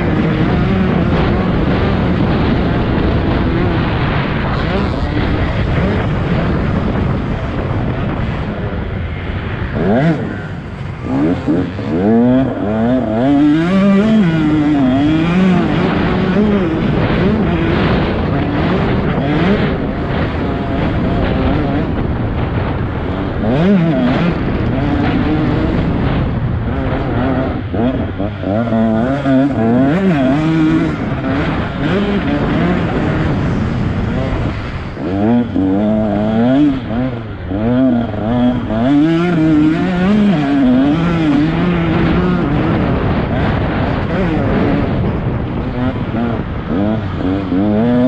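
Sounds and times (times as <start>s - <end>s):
motocross bike engine revving: 0.0s - 48.0s.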